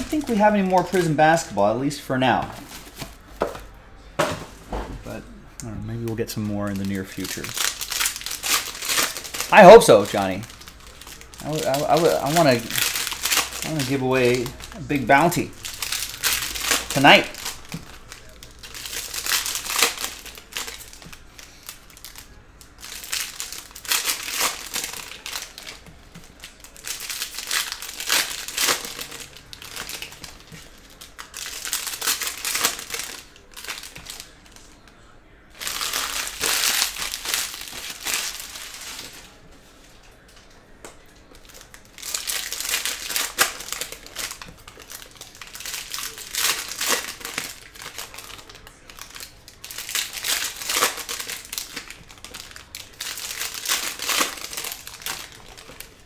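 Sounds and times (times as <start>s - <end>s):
foil wrappers crinkling: 0.0s - 3.6s, 5.8s - 56.0s.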